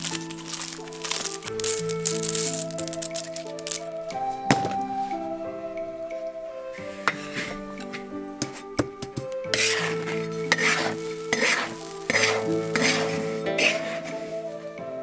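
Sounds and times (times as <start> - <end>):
soft background music: 0.0 - 15.0
metal spatula scraping salt in wok: 9.5 - 14.3.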